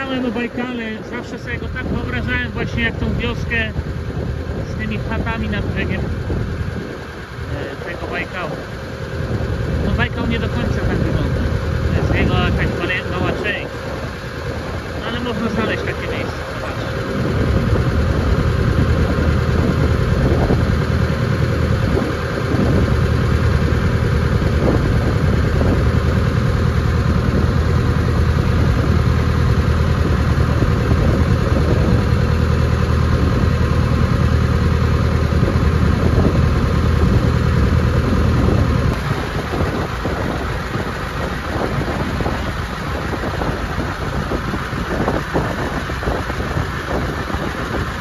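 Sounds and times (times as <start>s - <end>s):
motorboat engine running: 0.0s - 48.0s.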